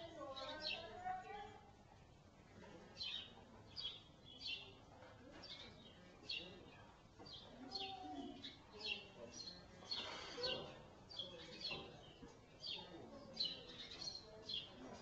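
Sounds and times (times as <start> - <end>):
small birds chirping: 0.0 - 1.9, 2.5 - 15.0.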